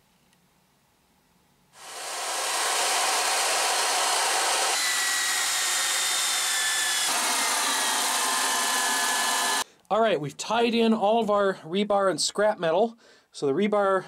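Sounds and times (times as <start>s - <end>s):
power drill boring into sandstone: 1.8s - 9.6s.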